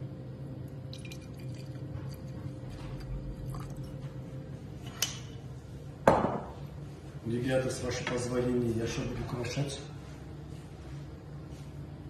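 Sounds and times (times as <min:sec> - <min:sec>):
steady low hum: 0:00.0 - 0:12.0
liquid trickling into a glass: 0:00.9 - 0:04.0.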